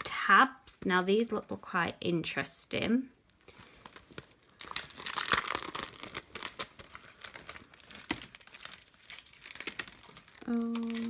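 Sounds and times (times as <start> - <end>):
packaging rustling and crackling: 3.3 - 11.0.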